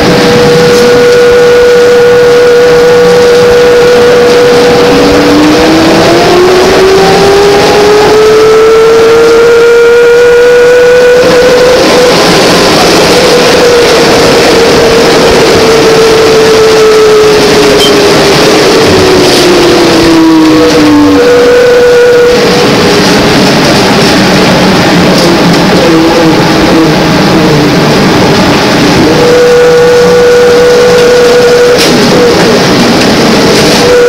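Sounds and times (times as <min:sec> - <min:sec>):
electric motor whine: 0:00.0 - 0:23.4
road and cabin noise: 0:00.0 - 0:34.0.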